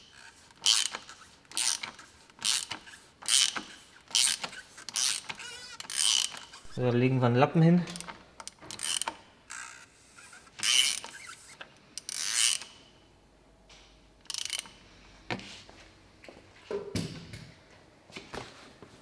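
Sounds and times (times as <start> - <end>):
hand ratchet clicking: 0.0 - 6.7, 7.9 - 12.8, 14.2 - 14.8.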